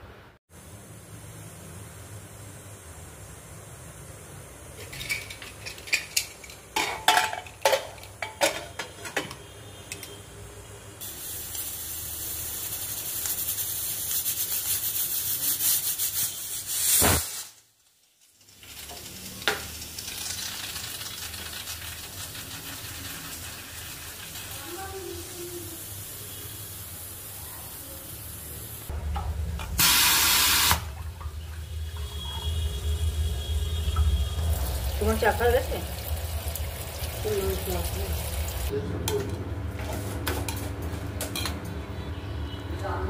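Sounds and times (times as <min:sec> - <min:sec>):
metal lid clinking and knocking: 0:04.8 - 0:09.4
pressure cooker hissing: 0:11.0 - 0:17.6, 0:22.6 - 0:28.9, 0:29.8 - 0:31.0, 0:32.5 - 0:38.7.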